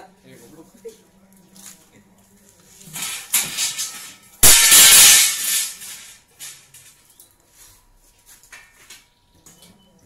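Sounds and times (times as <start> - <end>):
metal frame crashing and clattering: 2.9 - 6.9.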